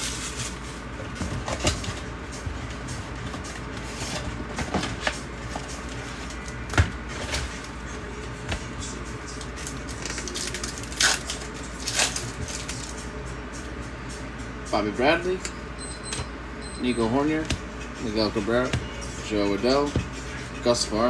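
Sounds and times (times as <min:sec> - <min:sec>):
packaging crinkling and rustling: 0:09.3 - 0:13.0.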